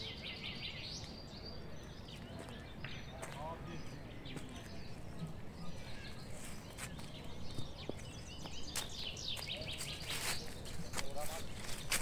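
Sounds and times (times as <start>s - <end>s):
small birds chirping: 0.0s - 12.0s
footsteps in dry leaves: 5.7s - 12.0s.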